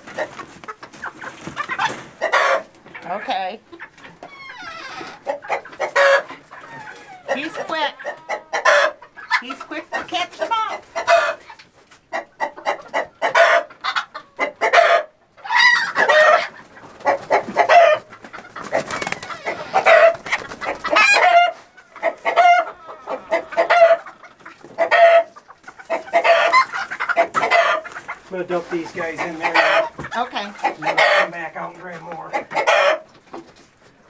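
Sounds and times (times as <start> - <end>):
chickens squawking: 0.0 - 34.0.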